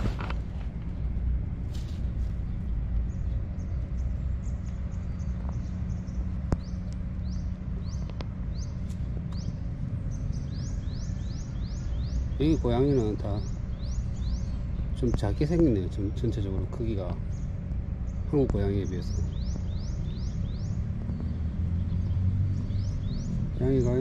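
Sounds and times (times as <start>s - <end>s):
bird chirping: 2.2s - 24.0s.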